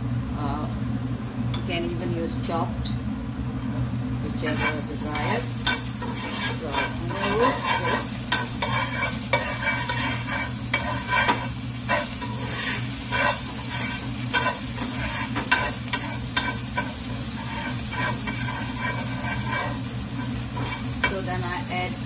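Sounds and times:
food sizzling in butter: 4.1 - 22.0
metal turner scraping pan: 4.4 - 21.4.

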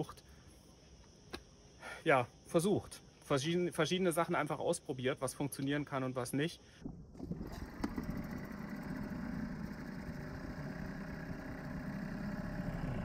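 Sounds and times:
outboard motor running: 7.2 - 13.0.

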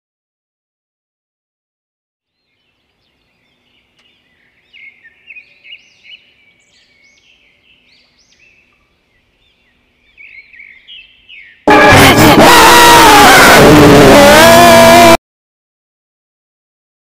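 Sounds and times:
birds chirping: 2.3 - 14.9.

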